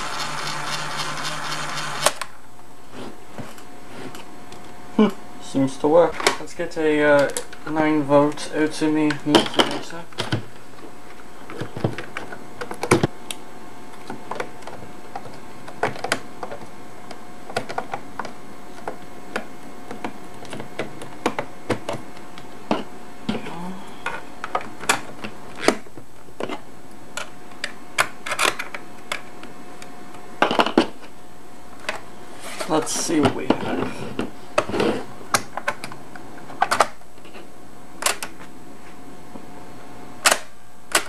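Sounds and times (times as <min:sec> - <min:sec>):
faint steady hum: 0:00.0 - 0:41.0.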